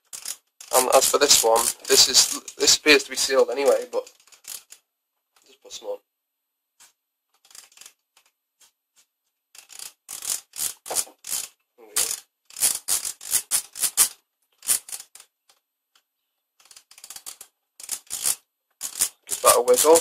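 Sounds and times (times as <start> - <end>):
aerosol can rattling: 0.0 - 4.8, 7.4 - 8.0, 9.6 - 15.2, 16.6 - 20.0.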